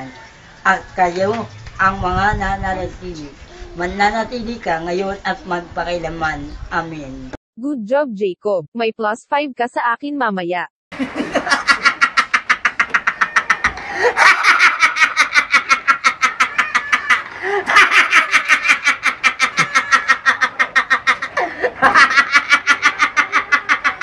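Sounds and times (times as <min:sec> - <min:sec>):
man laughing hard: 0:11.0 - 0:24.0.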